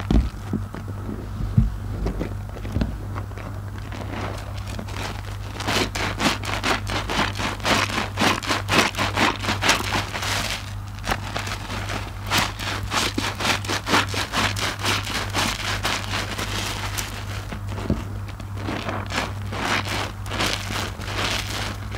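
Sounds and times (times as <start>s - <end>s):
foam crackling and popping: 0.0s - 1.0s, 1.8s - 21.9s
wet squelches of sponge: 18.4s - 21.9s.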